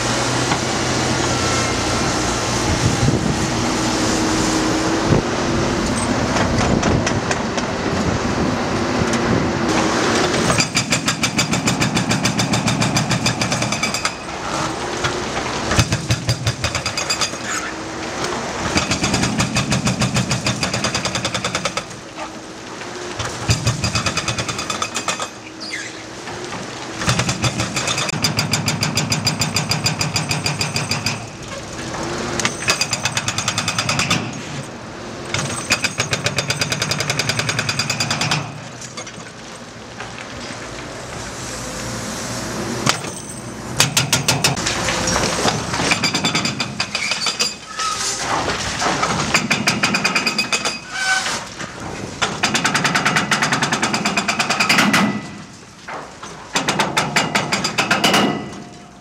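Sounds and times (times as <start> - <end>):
hydraulic breaker hammering pavement: 9.7 - 14.6, 15.7 - 17.5, 18.6 - 22.0, 23.2 - 25.4, 27.0 - 31.4, 43.8 - 47.6, 48.8 - 50.8, 52.2 - 55.5, 56.5 - 58.9.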